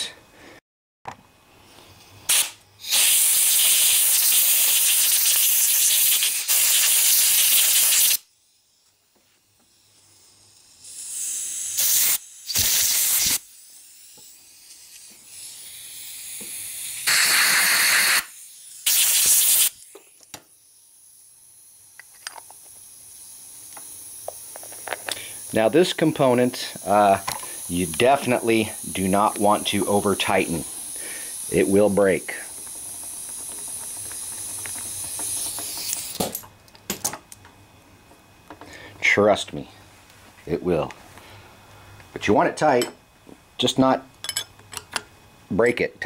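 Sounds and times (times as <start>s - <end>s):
pressurized nozzle hissing: 2.3s - 8.3s, 9.7s - 36.4s.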